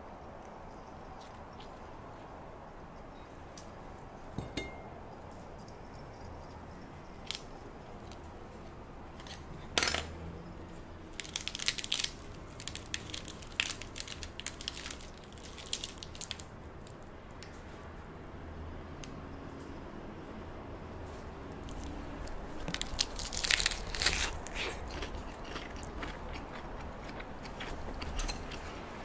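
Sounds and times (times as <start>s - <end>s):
lettuce leaves crinkling: 11.1s - 17.0s, 21.6s - 28.7s.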